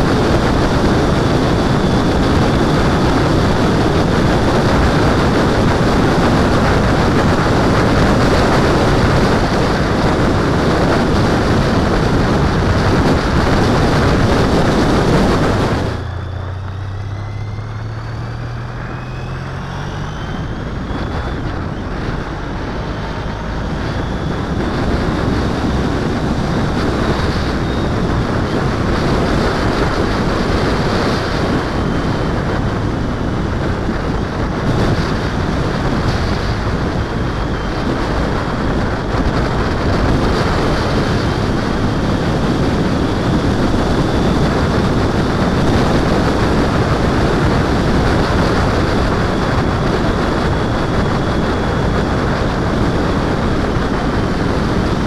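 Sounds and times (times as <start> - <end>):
faint whine: 0.0 - 55.0
wind rush on microphone: 0.0 - 55.0.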